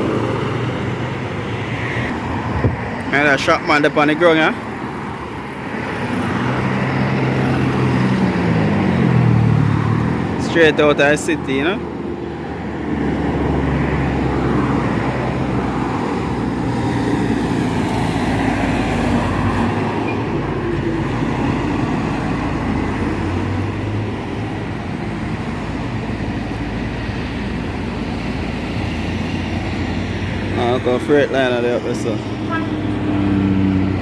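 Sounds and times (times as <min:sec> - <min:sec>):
highway traffic: 0:00.0 - 0:34.0.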